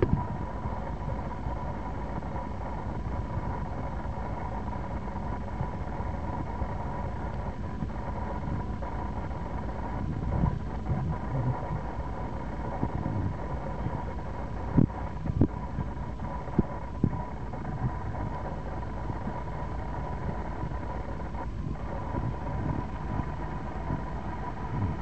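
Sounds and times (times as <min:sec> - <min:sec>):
footbridge machinery rumbling: 0:00.0 - 0:25.0.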